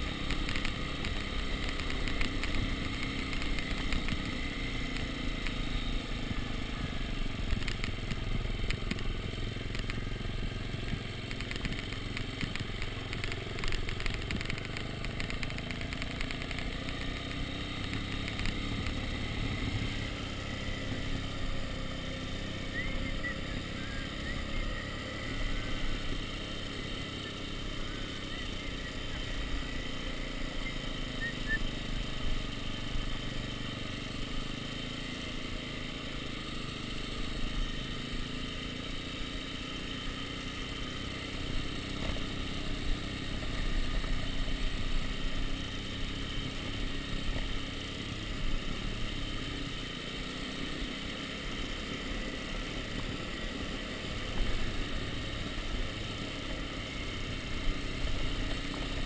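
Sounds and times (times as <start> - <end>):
dirt bike engine running: 0.0 - 59.0.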